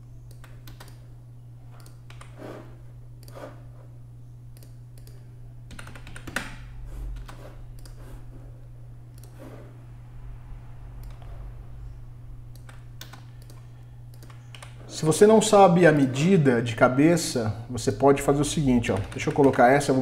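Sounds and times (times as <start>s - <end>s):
steady low hum: 0.0s - 20.0s
keyboard keys tapping: 5.0s - 6.6s, 18.8s - 20.0s
mouse clicking: 12.5s - 14.8s.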